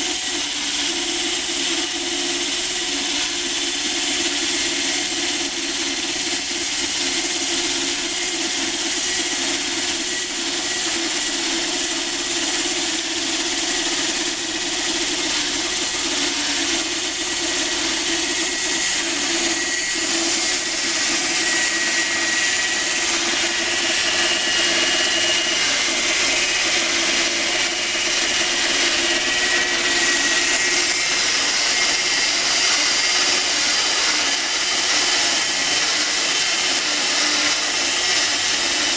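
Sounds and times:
bandsaw cutting through log: 0:00.0 - 0:38.9.

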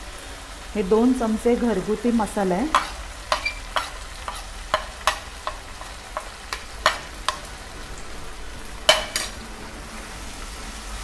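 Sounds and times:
faint sizzle of frying: 0:00.0 - 0:11.0
metal spoon scraping a pan: 0:02.7 - 0:07.5, 0:08.9 - 0:09.4.

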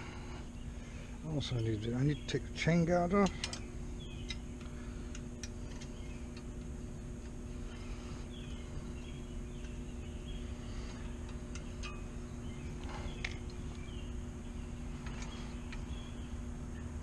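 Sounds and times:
birds chirping: 0:00.0 - 0:17.0
steady low hum: 0:00.0 - 0:17.0.

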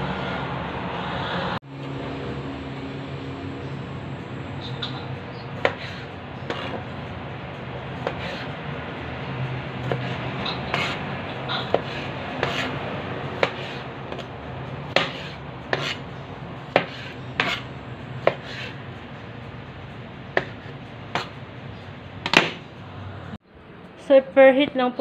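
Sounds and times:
low steady hum: 0:01.6 - 0:08.0.

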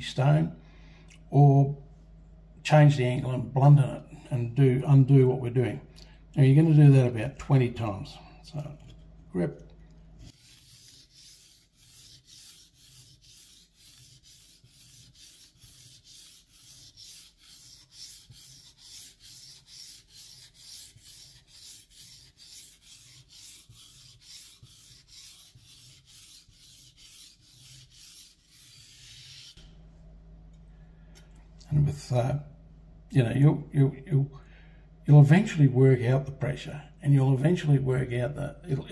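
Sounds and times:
knife scraping on whetstone: 0:10.3 - 0:29.6.

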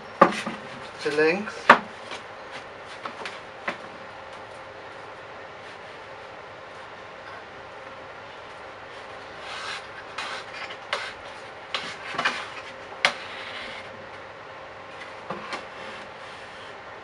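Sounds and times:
board scraping on wood: 0:09.0 - 0:14.0, 0:15.0 - 0:16.8.

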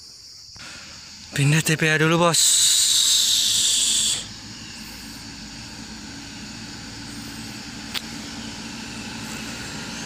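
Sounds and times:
distant diesel truck engine hum: 0:00.6 - 0:10.0.

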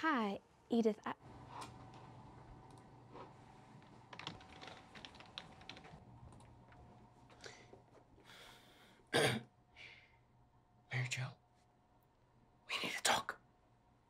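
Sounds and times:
computer keyboard typing: 0:03.8 - 0:06.5.

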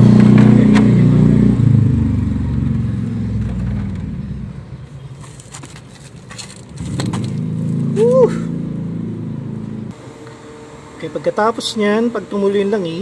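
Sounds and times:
vehicle engine droning: 0:00.0 - 0:10.9.

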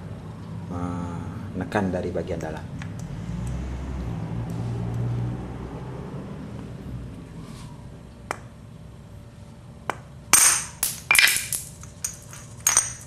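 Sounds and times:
small metal parts clinking: 0:10.3 - 0:13.0.

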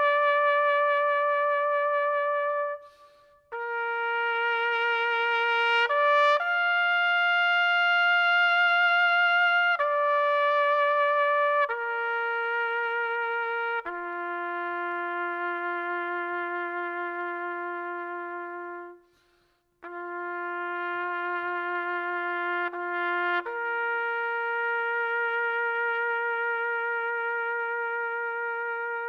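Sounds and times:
solo trumpet long notes: 0:00.0 - 0:19.2, 0:19.8 - 0:29.0.

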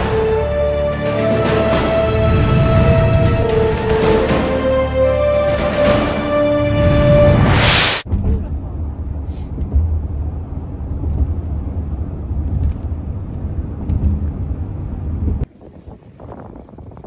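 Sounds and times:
road and engine rumble in car: 0:08.1 - 0:15.6.

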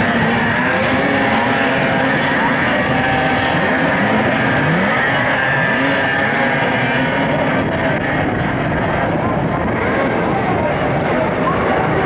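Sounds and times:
snowmobile engines revving: 0:00.0 - 0:12.0.

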